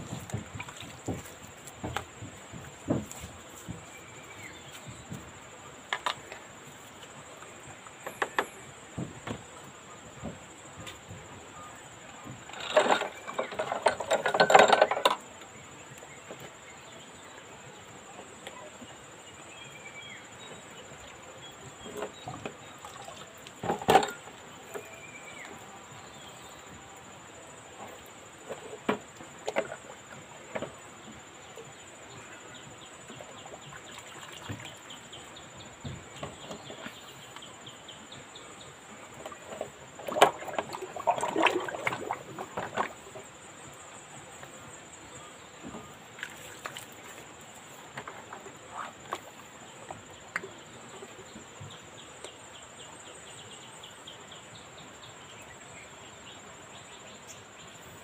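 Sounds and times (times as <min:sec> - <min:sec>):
liquid splashing in plastic basin: 0:40.0 - 0:43.0.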